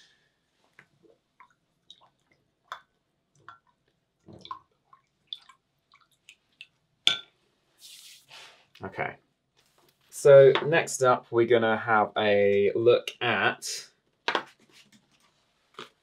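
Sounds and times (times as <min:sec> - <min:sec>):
small water splashes and drips: 0:00.8 - 0:06.9.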